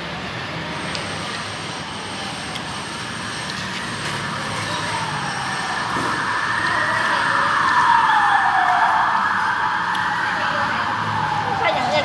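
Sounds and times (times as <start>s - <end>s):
road traffic rushing: 0.0s - 12.0s.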